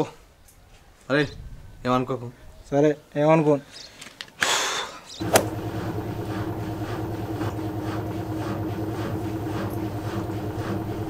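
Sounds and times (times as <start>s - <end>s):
low machine hum: 5.2s - 11.0s.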